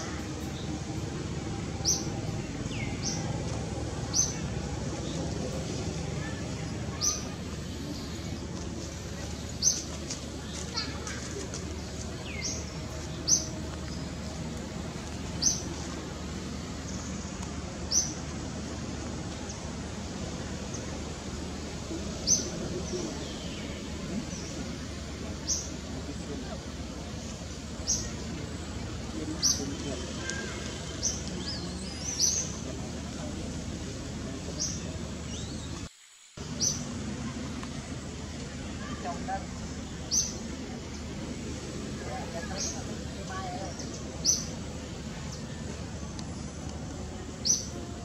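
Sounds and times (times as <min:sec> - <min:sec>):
small birds chirping: 0:00.0 - 0:47.9
low outdoor background noise: 0:00.0 - 0:48.0
steady background hiss: 0:00.0 - 0:48.0.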